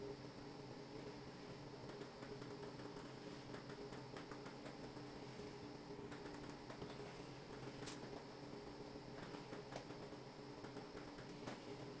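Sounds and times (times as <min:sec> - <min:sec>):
light clicks and ticks: 0:01.8 - 0:05.3, 0:06.0 - 0:11.8.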